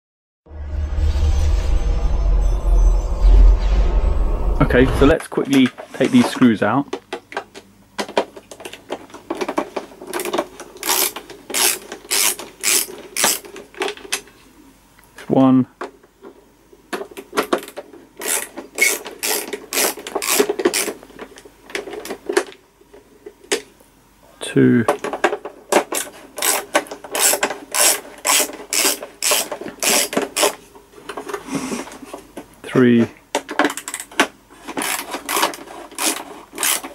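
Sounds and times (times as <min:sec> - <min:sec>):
ratcheting screwdriver clicking: 0:10.8 - 0:13.4
screwdriver rasping on screw: 0:10.8 - 0:13.4, 0:18.2 - 0:20.9, 0:26.4 - 0:30.6, 0:34.7 - 0:36.9.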